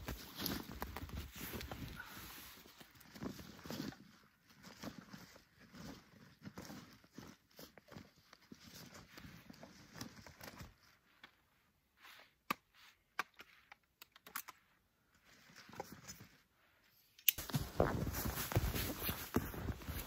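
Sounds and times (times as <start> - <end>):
rustling and small clicks of gear: 0.0 - 20.0
footsteps crunching in deep snow: 17.4 - 20.0.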